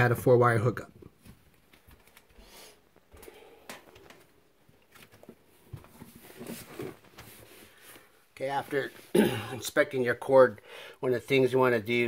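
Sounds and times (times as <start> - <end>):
faint breath: 2.4 - 3.9, 10.6 - 11.0.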